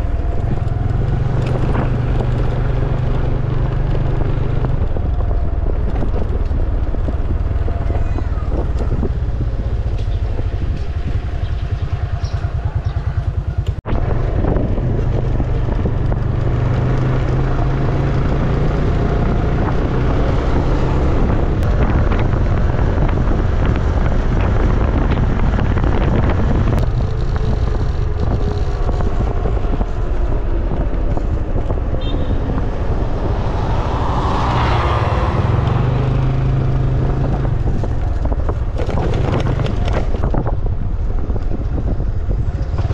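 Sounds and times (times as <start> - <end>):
road noise: 0.0 - 42.9
scooter engine drone: 0.0 - 42.9.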